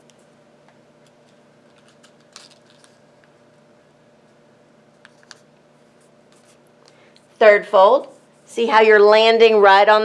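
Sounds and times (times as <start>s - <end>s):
faint steady hum: 0.0s - 10.0s
paper rustling as folded: 1.2s - 3.0s.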